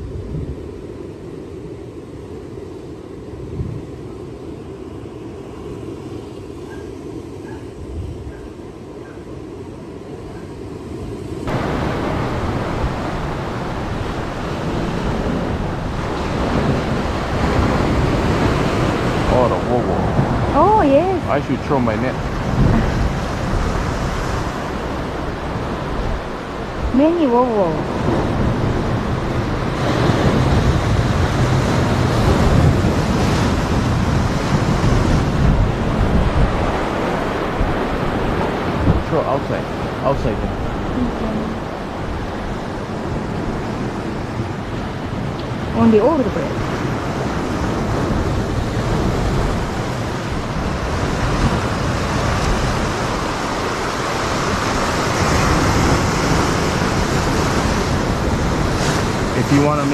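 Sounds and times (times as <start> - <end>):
wind rumble on microphone: 0.0 - 59.9
surf breaking over rocks: 11.4 - 41.0, 41.6 - 59.9.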